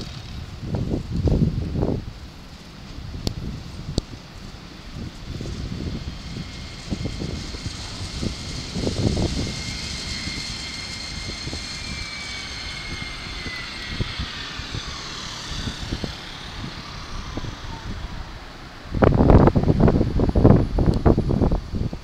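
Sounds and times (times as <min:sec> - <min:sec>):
electric train motor whine: 0:00.0 - 0:20.6
low running rumble: 0:00.0 - 0:22.0
wind buffeting microphone: 0:00.0 - 0:22.0.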